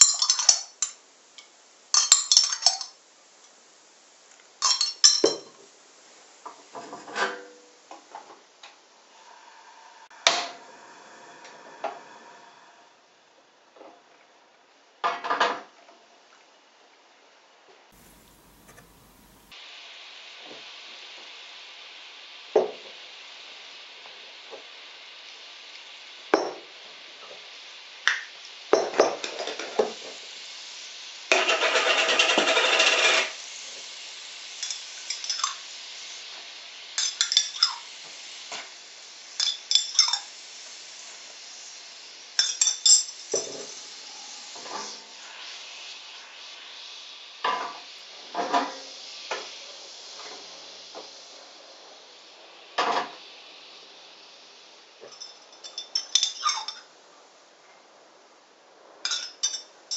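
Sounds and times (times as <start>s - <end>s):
metal spoons clinking on glass jars: 0.0s - 1.0s, 2.0s - 3.0s, 4.6s - 5.6s, 34.6s - 35.6s, 37.0s - 37.9s, 39.4s - 40.3s, 42.4s - 43.6s, 55.1s - 56.9s, 59.1s - 59.7s
steady hiss: 0.0s - 59.9s.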